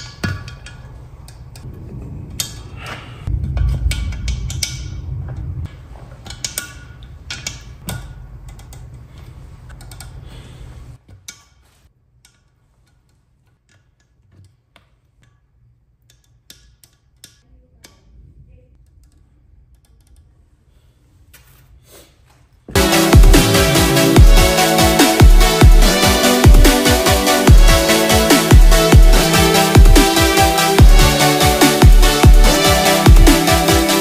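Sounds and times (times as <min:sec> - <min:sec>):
metallic clicks and taps: 0:06.2 - 0:10.2, 0:12.2 - 0:18.1
background music: 0:22.7 - 0:34.0.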